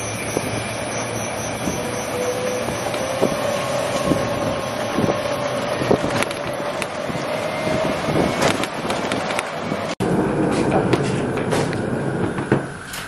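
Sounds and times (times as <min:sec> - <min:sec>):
wind noise on microphone: 0:02.6 - 0:13.0
cart rattles and knocks: 0:10.4 - 0:13.0.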